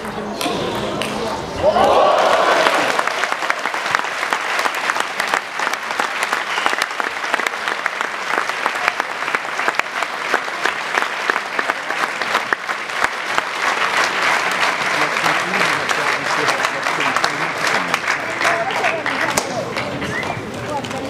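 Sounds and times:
crowd applauding: 0:00.0 - 0:21.0.

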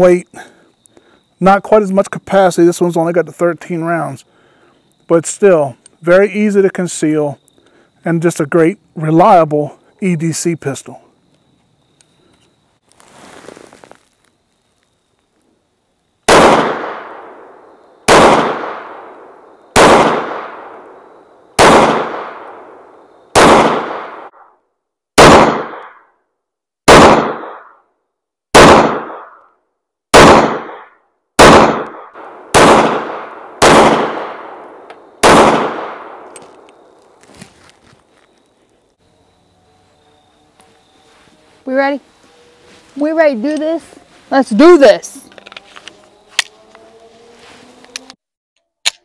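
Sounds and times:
pistol shots ringing: 0:16.3 - 0:17.5, 0:18.1 - 0:19.1, 0:19.7 - 0:20.8, 0:21.6 - 0:22.7, 0:23.3 - 0:24.3, 0:25.2 - 0:26.0, 0:26.9 - 0:27.7, 0:28.5 - 0:29.4, 0:30.1 - 0:36.9.

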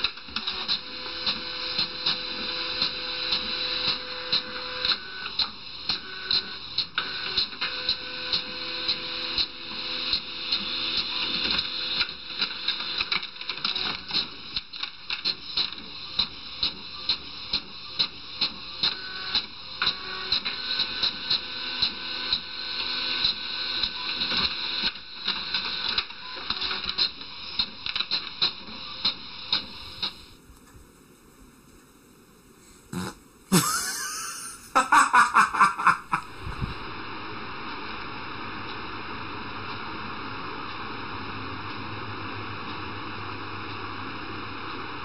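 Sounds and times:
printer mechanical whir: 0:00.0 - 0:30.4.

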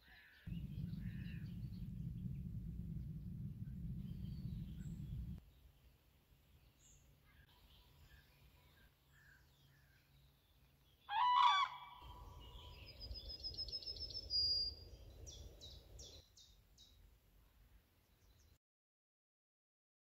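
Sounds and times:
songbird trill: 0:00.0 - 0:18.6
low steady noise: 0:00.5 - 0:11.0
harsh fowl call: 0:11.1 - 0:12.1.

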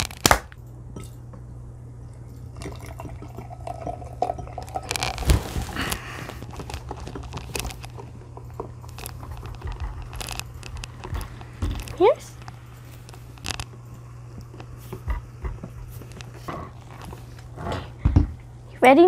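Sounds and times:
steady low hum: 0:00.0 - 0:19.0
soda pouring into a glass: 0:02.4 - 0:05.9.

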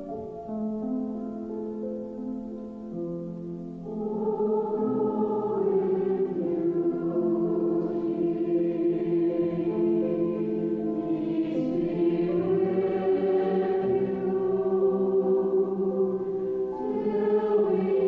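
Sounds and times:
choir singing a slow chant: 0:03.8 - 0:18.0.

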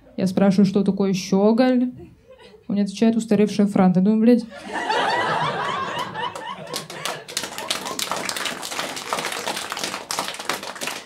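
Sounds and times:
audience laughing: 0:04.5 - 0:09.8
applause: 0:05.5 - 0:11.0.

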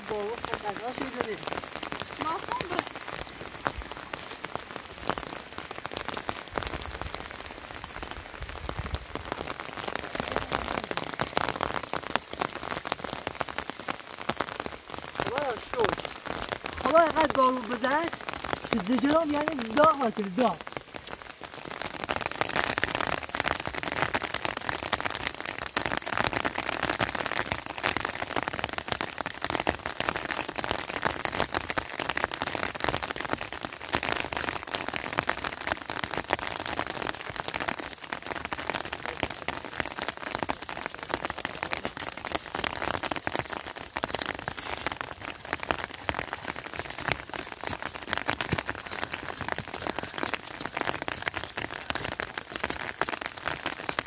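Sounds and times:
rain falling on ground: 0:00.0 - 0:54.0.

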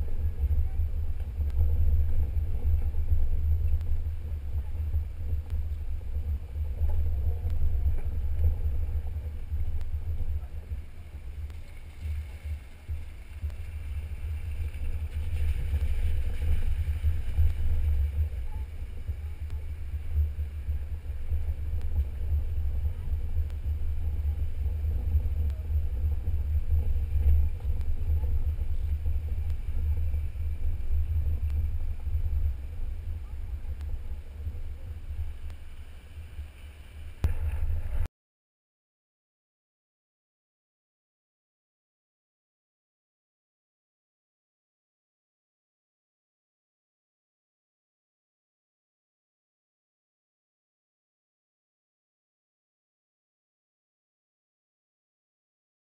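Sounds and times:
vehicle rumbling on dirt trail: 0:00.0 - 0:38.1.

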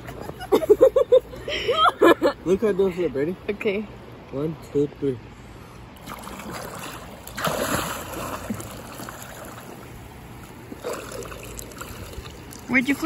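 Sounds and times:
moving water washing: 0:06.0 - 0:13.0
swimmer splashing in water: 0:06.0 - 0:13.0.

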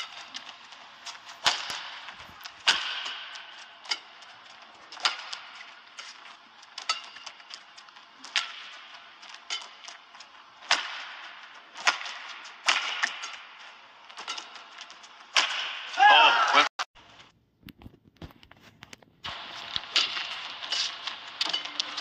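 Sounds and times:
loud yell: 0:16.0 - 0:16.7.

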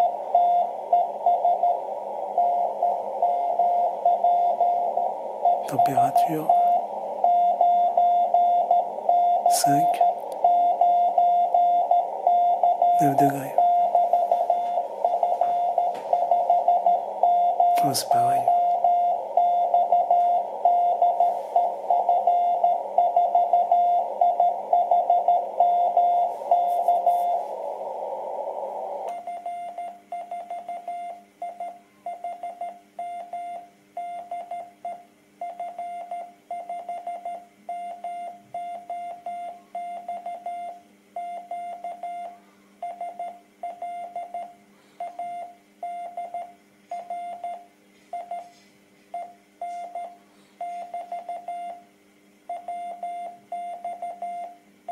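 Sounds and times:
radio band hiss: 0:00.0 - 0:07.2, 0:08.8 - 0:10.4, 0:12.9 - 0:19.4, 0:20.4 - 0:23.0, 0:26.2 - 0:29.1
morse code tone: 0:00.0 - 0:33.3.

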